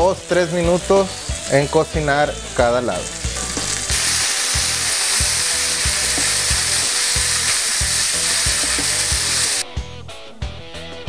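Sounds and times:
steak sizzling in a skillet: 0.0s - 9.6s.

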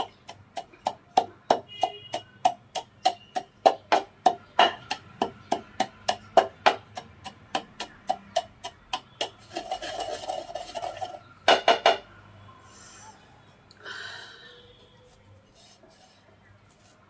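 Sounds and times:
pestle grinding powder: 0.0s - 11.6s
pestle pounding in wooden mortar: 0.0s - 12.0s.

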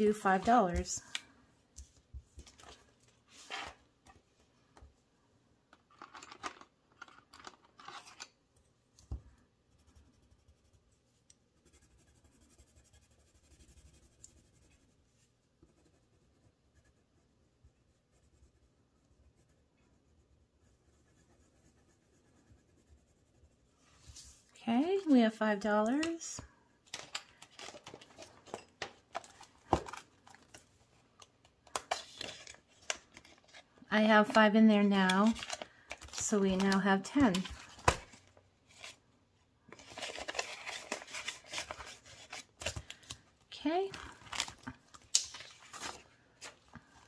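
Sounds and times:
paper cash rustling: 5.9s - 8.4s, 26.9s - 30.6s, 31.7s - 39.0s, 39.7s - 43.2s.

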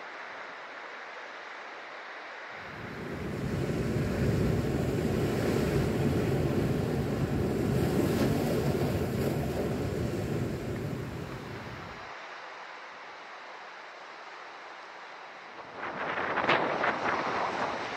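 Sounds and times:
surf washing on shore: 0.1s - 17.9s
wind rumbling on microphone: 2.6s - 12.1s, 15.6s - 17.9s.

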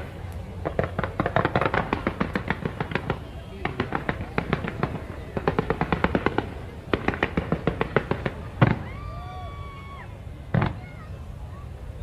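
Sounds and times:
fireworks crackling pops: 0.0s - 11.2s
firework bang: 0.6s - 9.2s, 10.5s - 11.1s.

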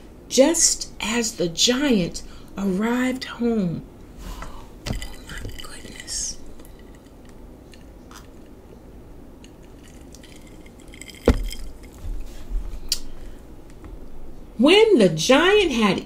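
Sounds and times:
glass set down on table: 11.2s - 11.7s.

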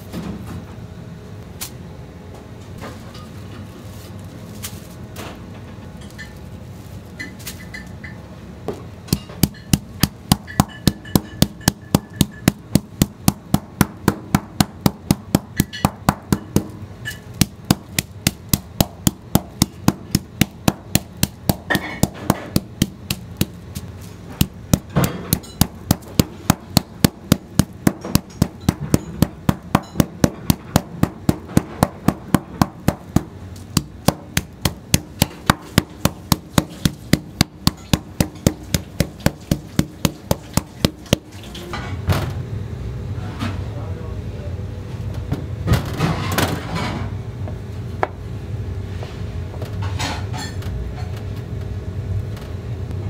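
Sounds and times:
meat pounder beating fish: 9.1s - 23.6s, 24.3s - 41.4s.

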